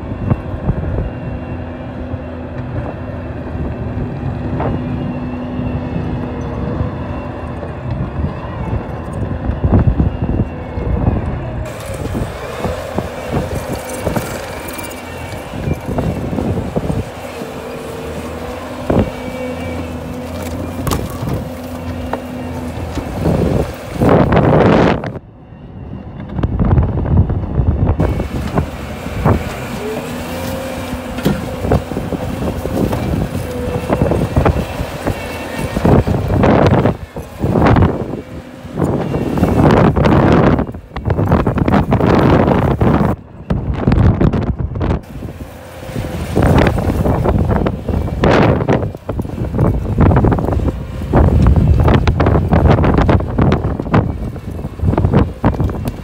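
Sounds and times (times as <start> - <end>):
diesel engine under load: 0.0 - 56.0.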